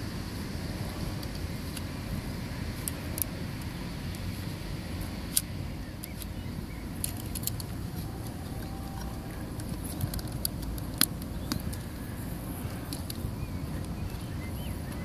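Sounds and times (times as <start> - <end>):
steady low rumble: 0.0 - 15.0
small metal clicks on camera: 7.0 - 11.9.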